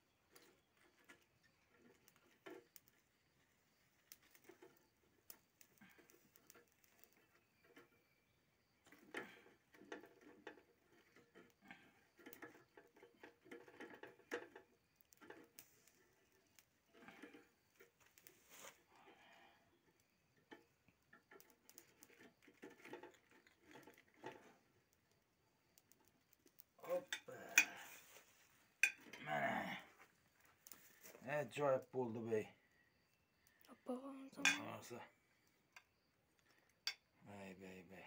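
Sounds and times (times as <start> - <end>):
faint clicks and taps: 19.8 - 29.2.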